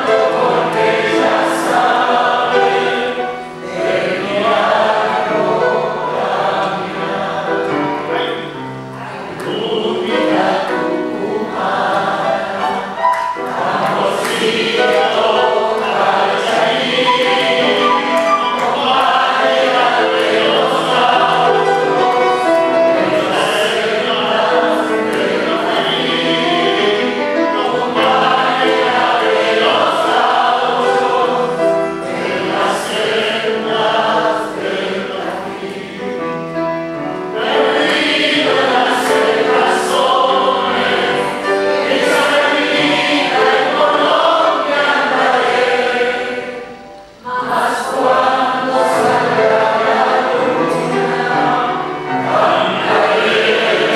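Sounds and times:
grand piano: 0:00.0 - 0:53.9
man singing operatically: 0:09.4 - 0:10.4.

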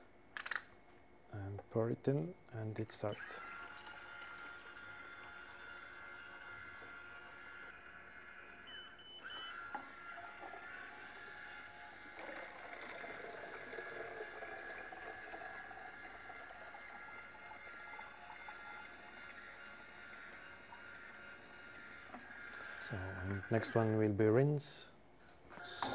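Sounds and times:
liquid splashing pour: 0:12.1 - 0:19.4.

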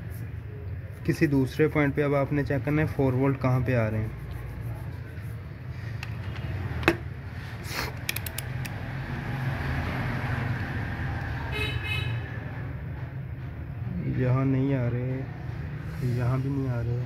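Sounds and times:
sharp clicks: 0:08.0 - 0:08.8.

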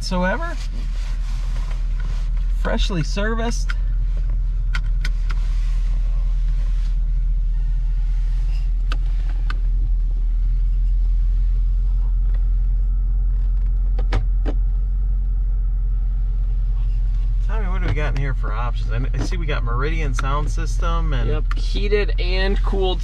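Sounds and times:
car engine idling: 0:00.0 - 0:23.0.

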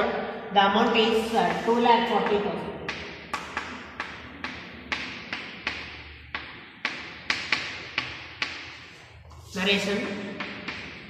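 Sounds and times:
chalk tapping on a chalkboard: 0:01.2 - 0:11.0.

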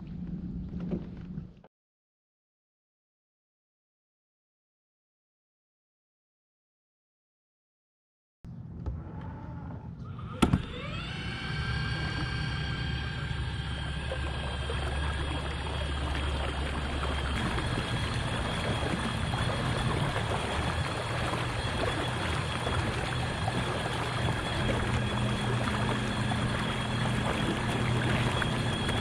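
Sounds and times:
kayak drive motor whine: 0:08.9 - 0:29.0
water rushing along hull: 0:10.4 - 0:29.0.

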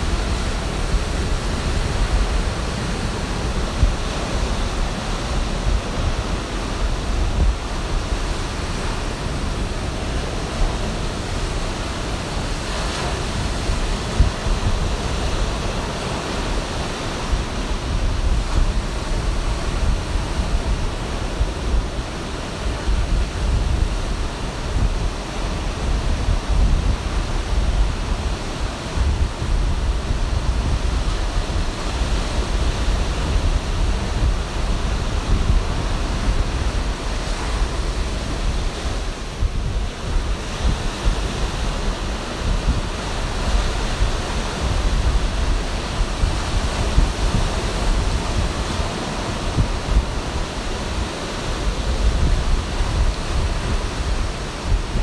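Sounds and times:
ocean surf breaking: 0:00.0 - 0:55.0
wind rumble on microphone: 0:00.0 - 0:55.0.

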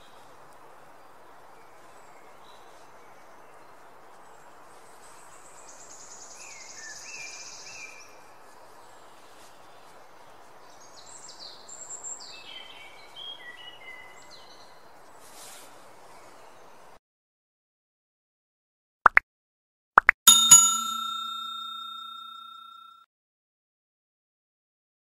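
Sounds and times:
outdoor background hiss: 0:00.0 - 0:17.0
small birds singing: 0:00.0 - 0:17.0.

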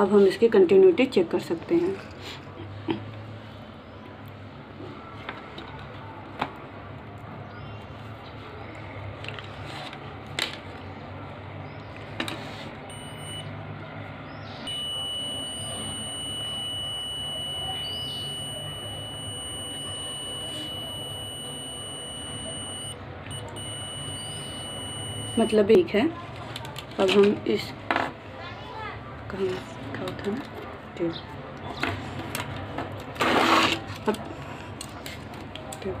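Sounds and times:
multimeter continuity beep: 0:12.9 - 0:13.6, 0:14.6 - 0:25.8.

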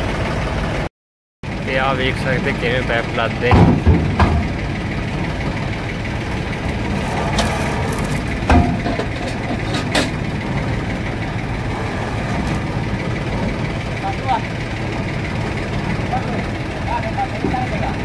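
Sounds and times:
engine idling: 0:00.0 - 0:18.0
metal pipes knocking: 0:03.2 - 0:16.4.

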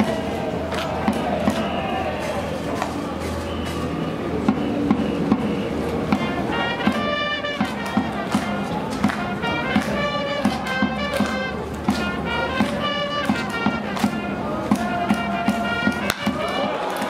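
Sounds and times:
sharp drum beats: 0:00.0 - 0:02.4, 0:04.4 - 0:17.0
trumpets playing a cheer tune: 0:05.0 - 0:17.0.

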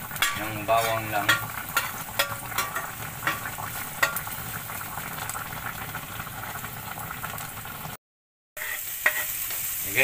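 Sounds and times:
garlic sizzling in oil: 0:00.0 - 0:08.0, 0:08.6 - 0:10.0.

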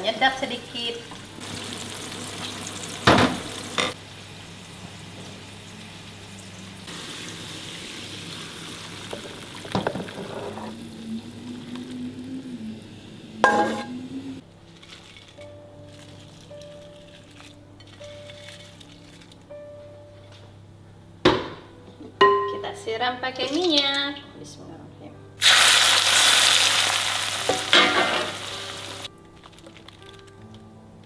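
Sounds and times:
sauce sizzling in frying pan: 0:00.7 - 0:14.4, 0:25.4 - 0:29.1
sauce pouring: 0:25.4 - 0:27.5.

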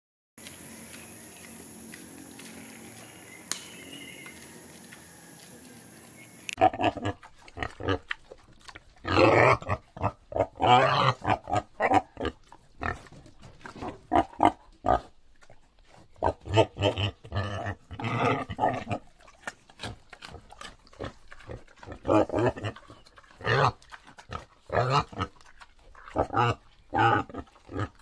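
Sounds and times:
wild boar grunting: 0:06.6 - 0:15.2, 0:16.0 - 0:28.0.

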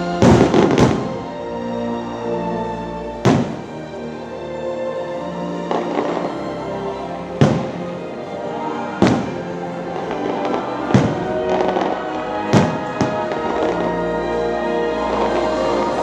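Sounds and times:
loud show music: 0:00.0 - 0:02.4, 0:05.7 - 0:16.0
fireworks bangs: 0:00.2 - 0:01.2, 0:03.2 - 0:03.7, 0:07.4 - 0:08.0, 0:08.6 - 0:14.0.

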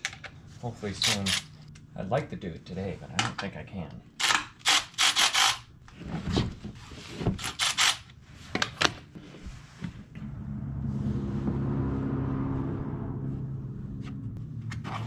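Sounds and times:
vehicle engine hum: 0:08.0 - 0:15.0.

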